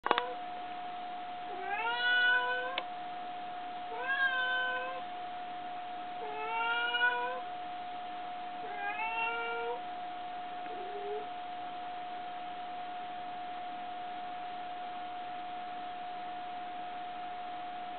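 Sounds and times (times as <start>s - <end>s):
faint high hum: 0.0s - 17.9s
cat meowing: 1.5s - 2.8s, 3.9s - 5.0s, 6.2s - 7.4s, 8.6s - 9.8s.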